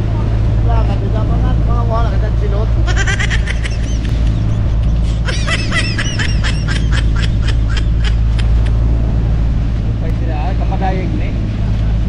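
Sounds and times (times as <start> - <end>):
boat engine running: 0.0 - 12.0
person laughing high-pitched: 2.8 - 8.8.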